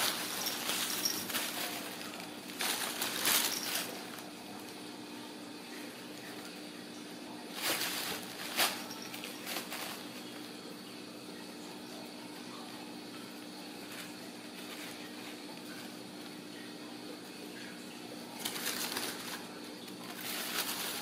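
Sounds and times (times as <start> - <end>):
paper rustling and crinkling: 0.0 - 4.8, 7.5 - 10.6, 13.8 - 16.0, 18.4 - 21.0.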